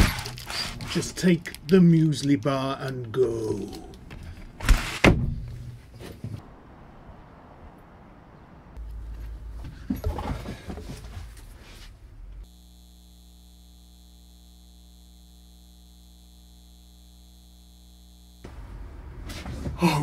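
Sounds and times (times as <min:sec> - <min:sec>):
knocks and rustles: 0:08.8 - 0:12.0
electrical hum with held tones: 0:12.0 - 0:20.0.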